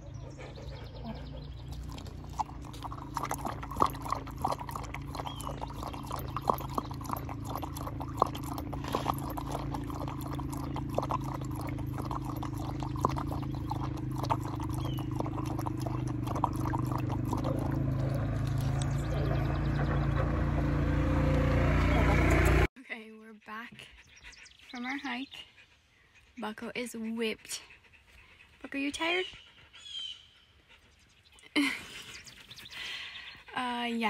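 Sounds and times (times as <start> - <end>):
dog lapping water: 0.0 - 22.7.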